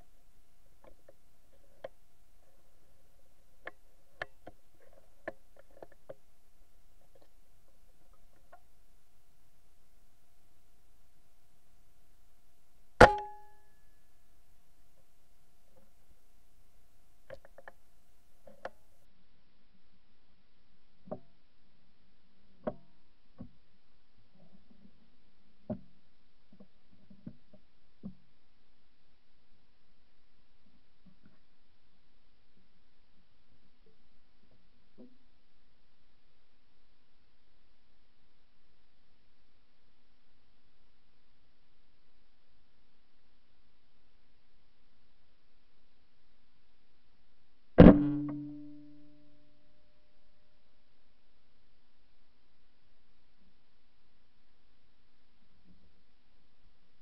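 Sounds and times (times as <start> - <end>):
faint low hum: 0.0 - 57.0
faint steady whine: 0.0 - 57.0
small sharp clicks and ticks: 17.2 - 19.1.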